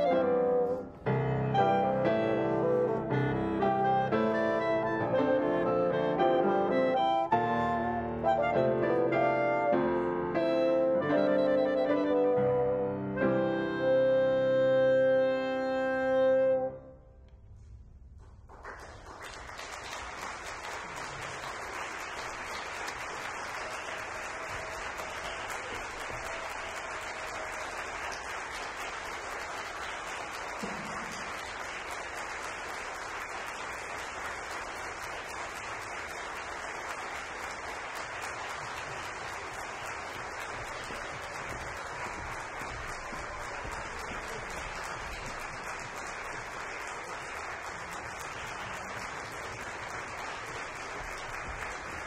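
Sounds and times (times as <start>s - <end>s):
clarinet bassoon and piano chord: 0.0s - 17.0s
audience applauding: 18.2s - 52.0s.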